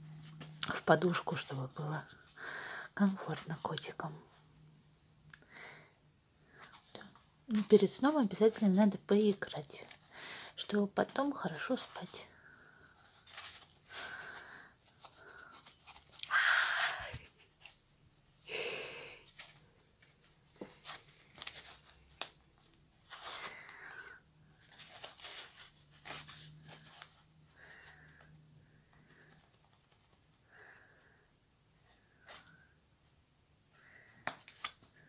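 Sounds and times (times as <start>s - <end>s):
cloth rustling and scratching: 12.8s - 14.2s, 14.8s - 16.3s, 17.0s - 18.4s, 19.3s - 23.6s, 24.5s - 28.3s, 29.0s - 30.4s.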